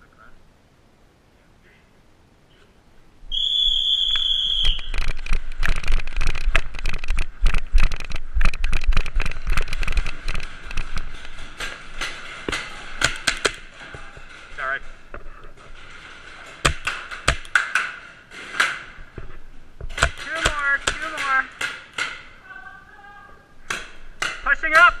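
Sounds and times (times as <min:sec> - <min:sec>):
paintball markers firing: 0:16.6 - 0:18.9, 0:19.8 - 0:22.3.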